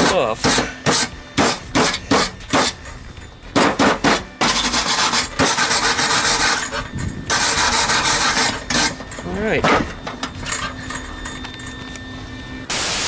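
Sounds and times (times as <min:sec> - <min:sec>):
wire brush scrubbing metal: 0:04.4 - 0:09.0.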